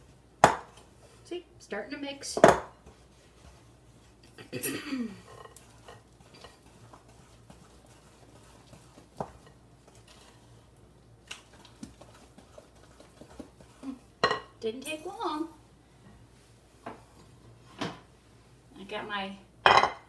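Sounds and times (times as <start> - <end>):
spoon scraping batter in bowl: 5.2 - 14.2.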